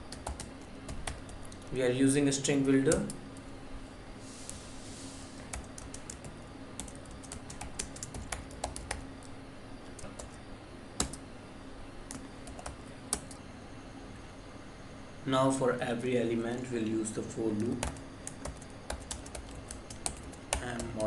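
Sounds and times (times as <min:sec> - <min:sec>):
computer keyboard typing: 0:00.0 - 0:01.7, 0:02.8 - 0:03.2, 0:05.5 - 0:10.4, 0:11.0 - 0:11.2, 0:12.1 - 0:13.4, 0:17.5 - 0:21.0
faint steady hum: 0:00.0 - 0:21.0.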